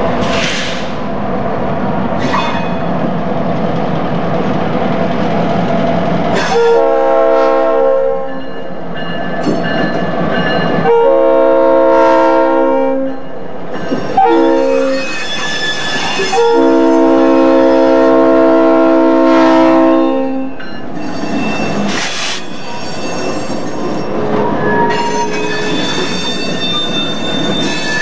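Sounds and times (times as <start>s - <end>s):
diesel locomotive running: 0.0s - 28.0s
locomotive air horn blasts: 6.4s - 8.3s, 10.8s - 13.1s, 14.2s - 15.0s, 16.2s - 20.5s.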